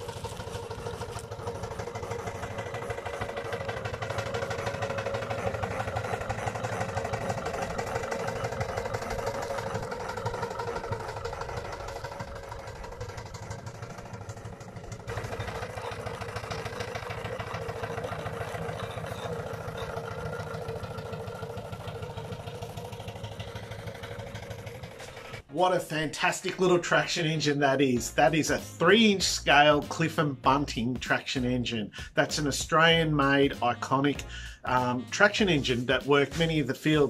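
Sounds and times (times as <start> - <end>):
steam traction engine running: 0.0 - 29.3.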